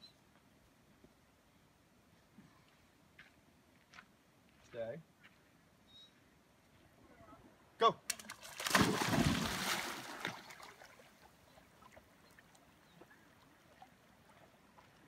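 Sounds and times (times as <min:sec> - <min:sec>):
faint water sounds: 0:06.4 - 0:15.0
dog splashing into lake: 0:08.2 - 0:11.1.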